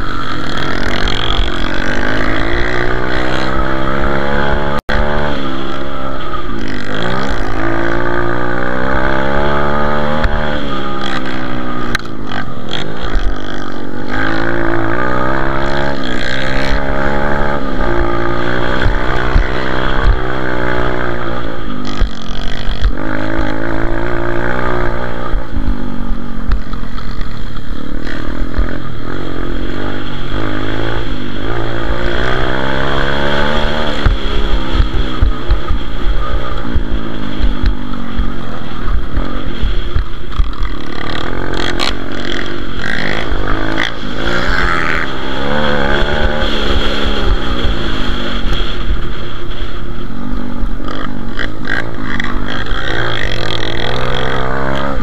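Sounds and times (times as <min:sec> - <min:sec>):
pitbike engine revving: 0:00.0 - 0:48.9, 0:50.8 - 0:55.0.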